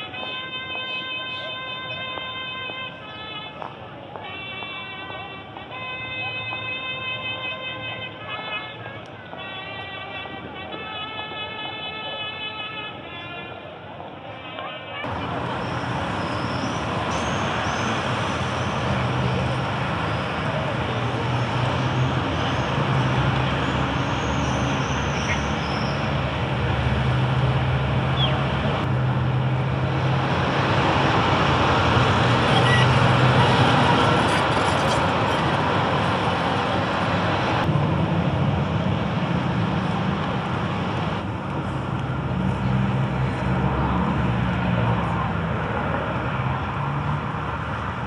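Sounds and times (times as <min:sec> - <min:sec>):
hum of passing vehicles: 0:15.0 - 0:48.0.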